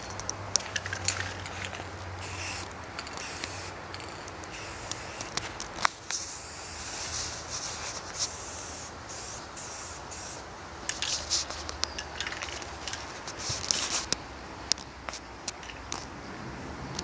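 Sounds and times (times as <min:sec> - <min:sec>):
spray paint can hissing: 0:02.2 - 0:11.6.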